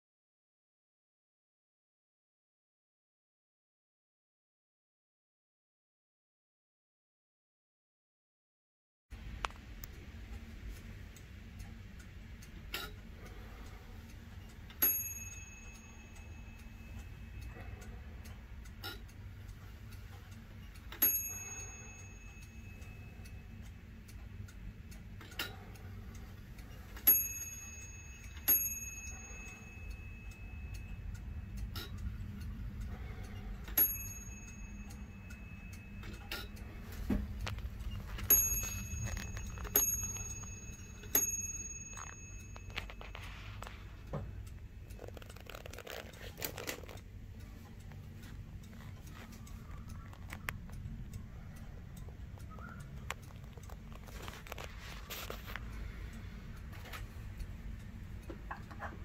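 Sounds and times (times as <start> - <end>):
clock ticking faintly: 9.1 - 59.0
clock bell striking: 14.8 - 18.2, 20.6 - 23.6, 26.7 - 31.8, 33.7 - 43.8.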